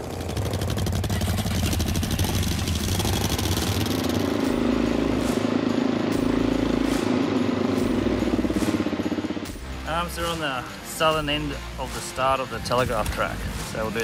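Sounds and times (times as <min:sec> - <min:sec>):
dirt bike engines running: 0:00.0 - 0:11.7.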